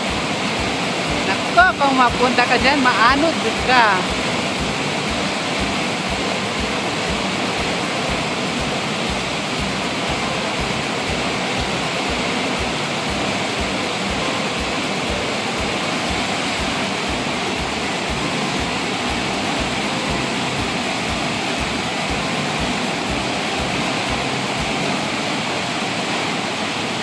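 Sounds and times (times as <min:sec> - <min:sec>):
water rushing through rapids: 0:00.0 - 0:27.0.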